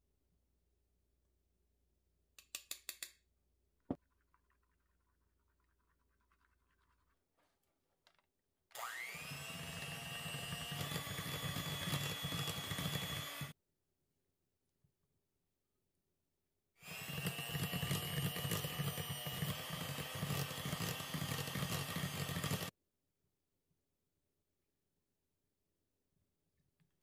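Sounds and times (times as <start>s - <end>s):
electric hand mixer whirring: 8.7s - 13.6s, 16.8s - 22.8s.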